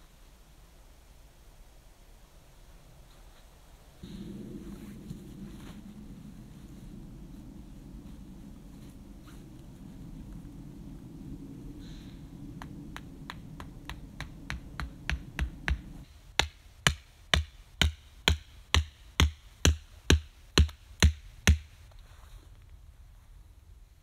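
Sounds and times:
stake being hammered into ground: 0:12.9 - 0:21.7.

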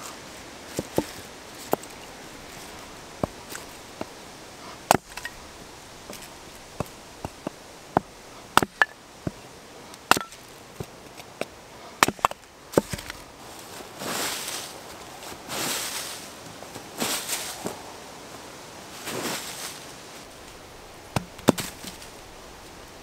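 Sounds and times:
footsteps crunching dry leaves: 0:00.0 - 0:08.0, 0:12.8 - 0:17.8, 0:18.9 - 0:22.9
axe splitting kindling: 0:00.7 - 0:09.4, 0:10.0 - 0:10.9, 0:12.0 - 0:13.2, 0:21.1 - 0:22.2.

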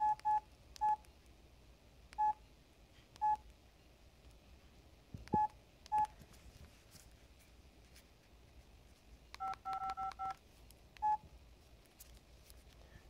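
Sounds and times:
phone key beeps: 0:00.0 - 0:01.1, 0:02.2 - 0:02.4, 0:03.2 - 0:03.4, 0:05.4 - 0:06.1, 0:09.4 - 0:10.4, 0:11.0 - 0:11.2.

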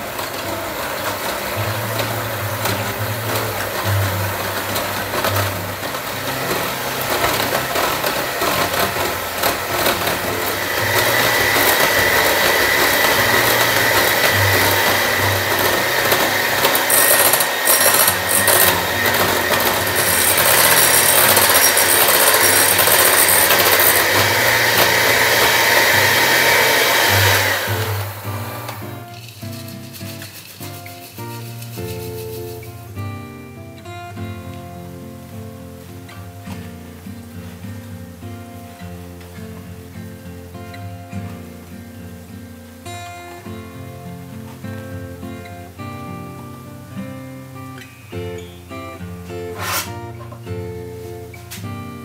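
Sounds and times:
electric hand mixer whirring: 0:00.0 - 0:29.1.

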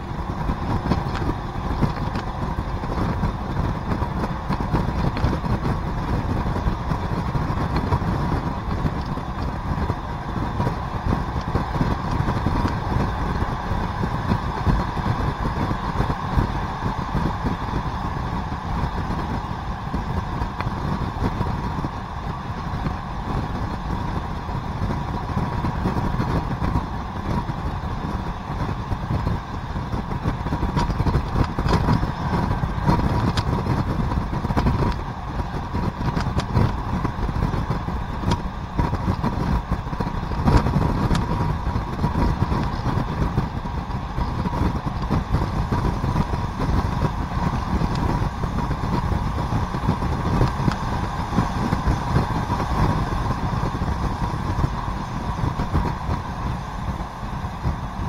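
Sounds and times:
railcar engine drone: 0:00.0 - 0:58.0
wheel-on-rail rumble: 0:00.0 - 0:58.0
sharp clicks from track: 0:35.7 - 0:37.1.

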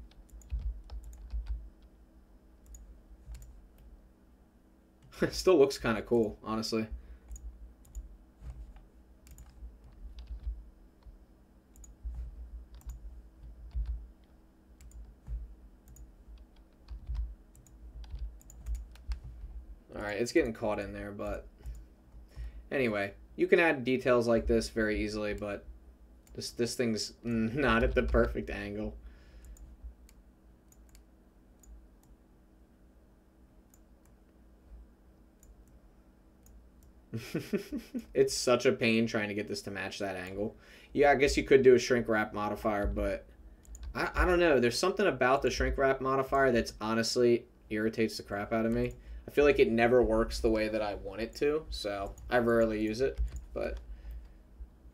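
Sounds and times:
computer mouse clicks: 0:00.0 - 0:01.9, 0:02.6 - 0:03.9, 0:07.3 - 0:19.4, 0:29.4 - 0:32.2, 0:43.6 - 0:44.0, 0:52.0 - 0:54.3
keyboard keys clicking: 0:00.0 - 0:01.9, 0:07.3 - 0:11.2, 0:11.8 - 0:19.4
low steady hum: 0:00.0 - 0:54.9.

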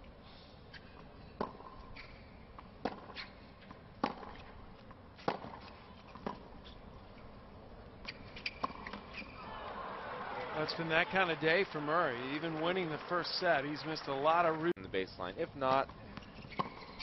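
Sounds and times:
tennis racket hitting ball: 0:05.2 - 0:06.4.

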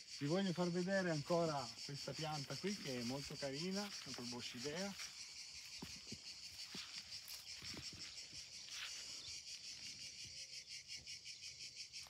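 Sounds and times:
insects chirping in chorus: 0:00.0 - 0:12.0.

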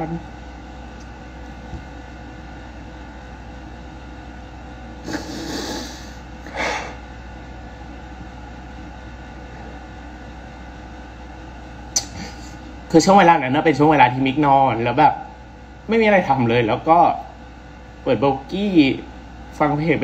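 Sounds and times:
low room hum: 0:00.0 - 0:20.0
woman sniffling: 0:05.0 - 0:07.0, 0:12.0 - 0:12.6.

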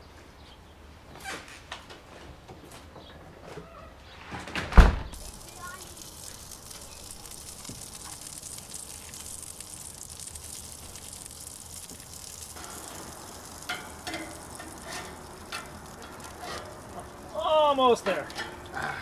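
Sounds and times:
patties sizzling on a grill: 0:05.1 - 0:19.0.

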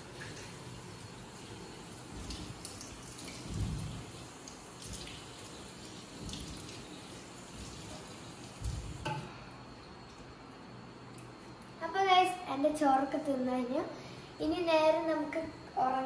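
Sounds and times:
tap water running into a basin: 0:00.0 - 0:09.2.

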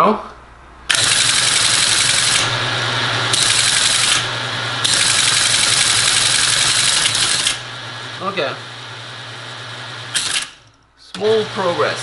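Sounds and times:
teletype clattering: 0:00.9 - 0:02.5, 0:04.9 - 0:07.6
motor hum: 0:00.9 - 0:12.0.

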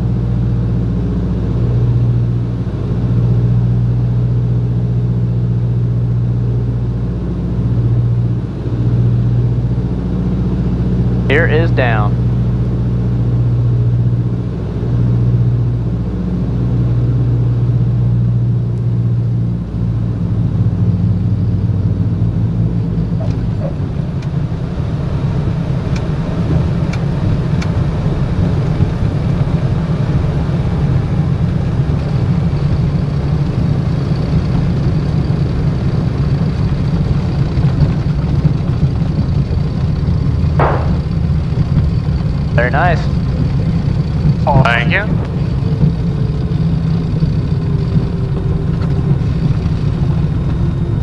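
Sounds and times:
aircraft engine drone: 0:00.0 - 0:51.0
landing rumble: 0:38.5 - 0:42.5.

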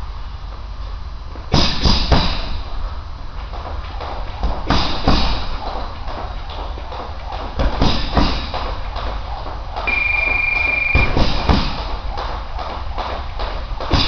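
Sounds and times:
punches thudding on heavy bag: 0:01.5 - 0:02.6, 0:04.4 - 0:05.6, 0:07.6 - 0:08.6, 0:10.9 - 0:11.9
high beep: 0:09.9 - 0:11.2.

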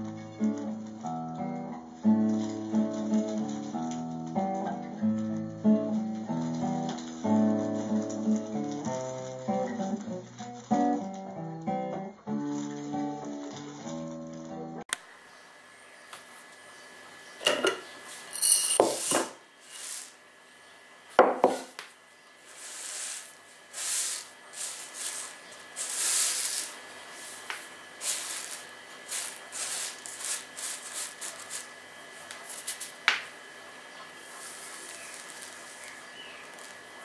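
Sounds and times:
rice clattering onto table: 0:17.4 - 0:20.2, 0:21.2 - 0:21.9, 0:22.5 - 0:31.7, 0:34.4 - 0:37.0
hand sweeping rice: 0:18.1 - 0:20.2, 0:22.4 - 0:33.0, 0:34.2 - 0:37.0.

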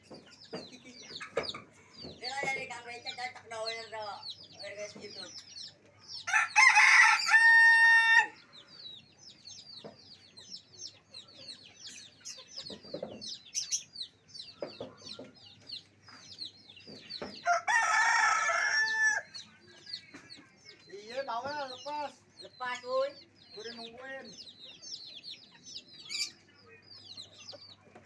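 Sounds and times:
small birds chirping: 0:00.0 - 0:28.0
rooster crowing: 0:06.3 - 0:08.4, 0:17.4 - 0:19.4.

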